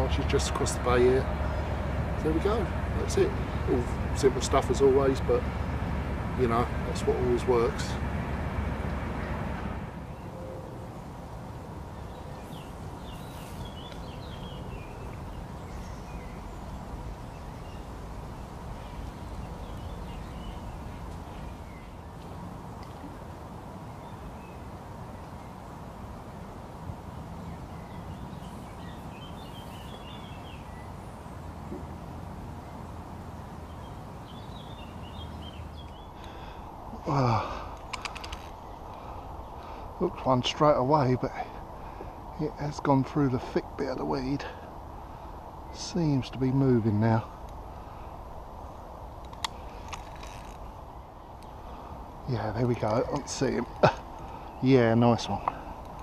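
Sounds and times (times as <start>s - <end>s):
small birds chirping: 0.0s - 8.1s, 10.0s - 56.0s
steady low rumble: 0.0s - 56.0s
sharp clicks: 37.7s - 39.0s.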